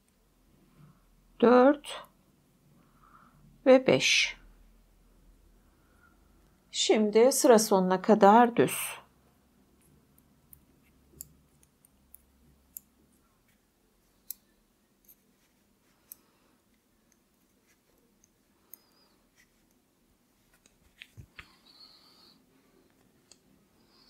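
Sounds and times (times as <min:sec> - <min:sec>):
knitting needles clicking: 0:09.8 - 0:13.0.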